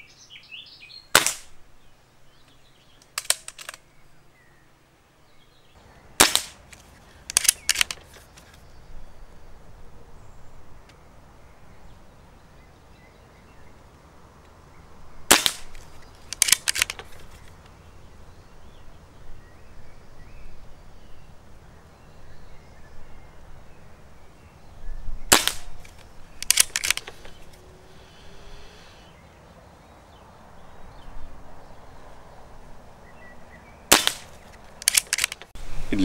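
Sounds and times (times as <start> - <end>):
silenced air rifle shot: 1.1 - 1.6, 6.2 - 8.1, 15.3 - 17.4, 25.3 - 27.5, 33.9 - 35.5
quick clicks: 3.0 - 3.8, 6.2 - 8.6, 15.3 - 17.6, 25.3 - 27.6, 33.9 - 35.6.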